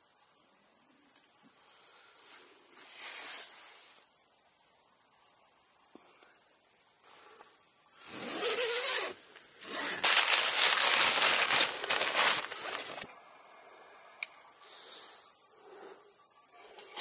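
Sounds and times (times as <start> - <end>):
tent fabric rustling: 2.7 - 4.1, 8.0 - 13.1.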